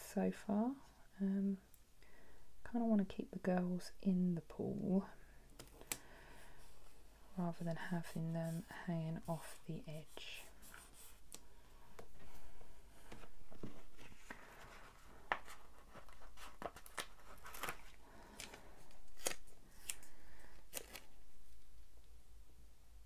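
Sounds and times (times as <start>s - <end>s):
paper stickers rustling: 13.5s - 21.6s.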